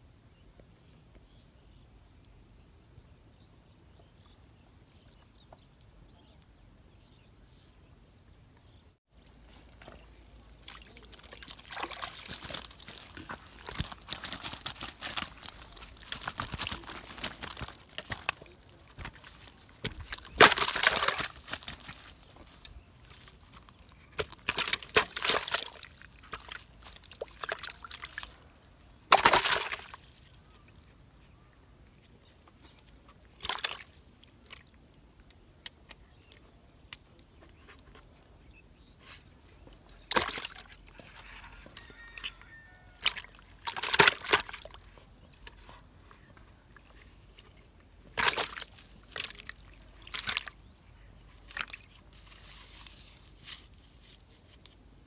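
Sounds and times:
water splashing in a plastic bucket: 0:09.2 - 0:31.3, 0:32.8 - 0:37.6, 0:40.0 - 0:41.1, 0:42.1 - 0:52.1.

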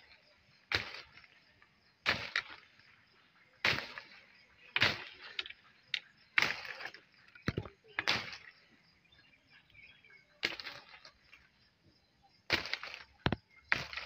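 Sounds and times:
pole knocking branches: 0:00.7 - 0:01.3, 0:02.0 - 0:02.8, 0:03.6 - 0:08.5, 0:10.4 - 0:11.1, 0:12.5 - 0:14.0.

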